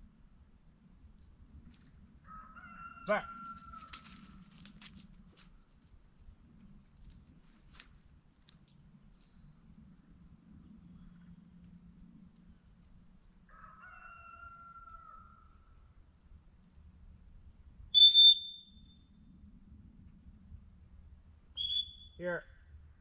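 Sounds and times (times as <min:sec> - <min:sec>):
dog whistle blast: 0:17.9 - 0:18.7, 0:21.6 - 0:22.2.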